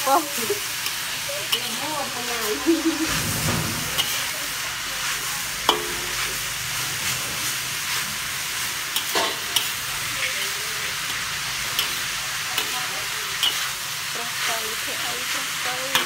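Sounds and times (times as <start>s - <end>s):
food sizzling in a wok: 0.0s - 16.0s
metal spatula clinking on wok: 5.7s - 6.2s.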